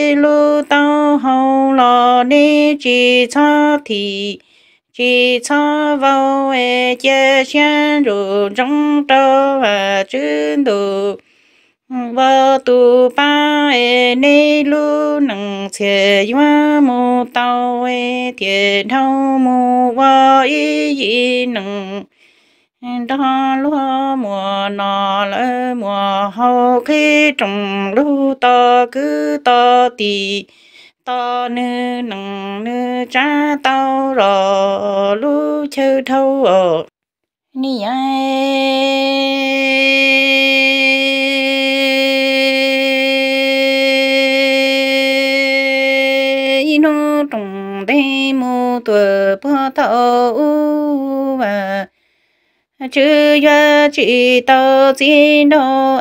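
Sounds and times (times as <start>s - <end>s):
woman singing unaccompanied: 0.0s - 22.2s, 22.8s - 52.0s, 52.8s - 56.0s
quick breaths: 4.4s - 4.9s, 11.2s - 11.9s, 22.1s - 22.8s, 30.5s - 31.0s, 51.9s - 52.8s.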